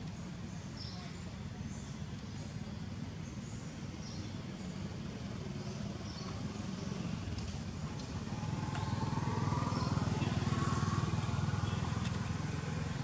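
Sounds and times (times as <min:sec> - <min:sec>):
vehicle engine rumbling: 0:05.2 - 0:13.0.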